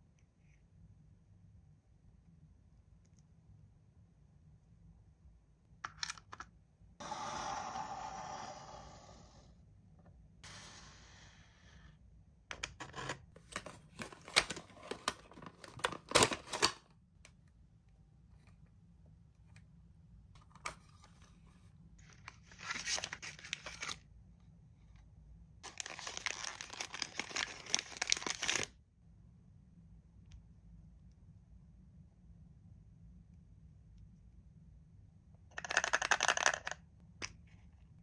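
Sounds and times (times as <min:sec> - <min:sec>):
packaging being torn and crinkled: 0:25.6 - 0:28.7.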